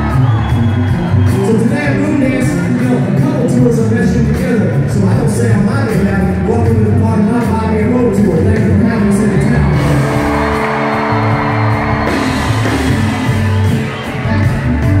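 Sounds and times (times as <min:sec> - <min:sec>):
crowd whooping and shouting: 0:00.0 - 0:03.0, 0:08.7 - 0:15.0
live country band playing: 0:00.0 - 0:15.0.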